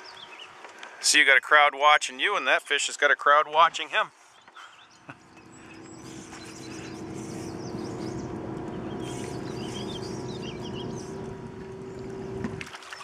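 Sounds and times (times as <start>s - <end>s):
birds chirping: 3.7s - 13.0s
boat motor humming: 4.9s - 13.0s.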